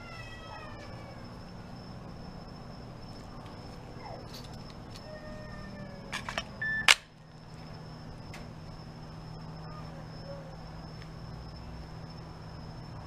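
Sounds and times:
pistol parts clicking: 6.1 - 7.2
loud snap: 6.2 - 7.1.

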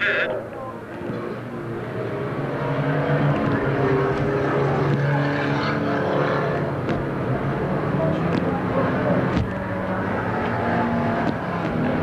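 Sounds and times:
race car engines passing: 0.0 - 12.0.

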